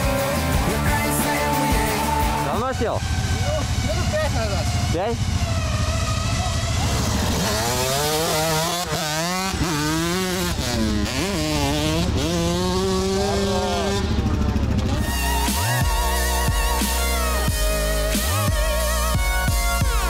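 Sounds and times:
music: 0.0s - 2.7s, 15.0s - 20.0s
dirt bike engine revving: 0.0s - 20.0s.

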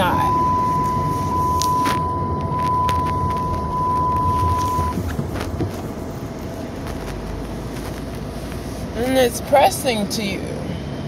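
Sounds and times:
high-pitched tone: 0.0s - 5.0s
car engine rumble and road noise: 0.0s - 11.0s.

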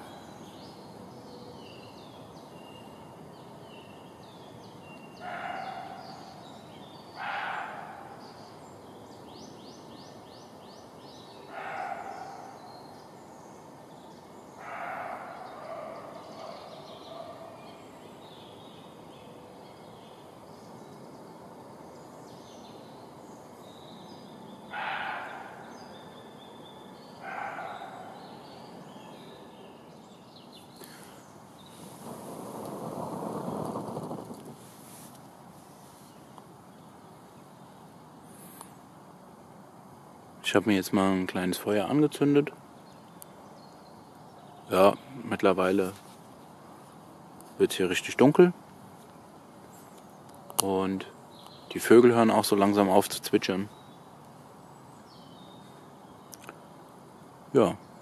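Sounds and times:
faint bird chirps: 0.0s - 34.7s
animal hoarse calls: 24.7s - 25.7s
steady hiss: 28.0s - 58.0s.

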